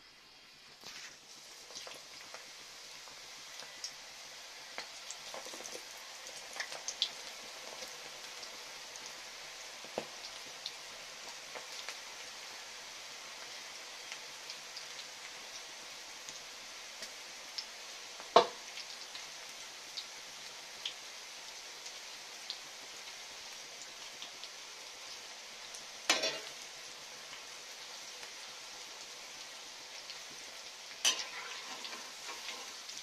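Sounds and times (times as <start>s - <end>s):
batter deep-frying in oil: 0.0s - 33.0s.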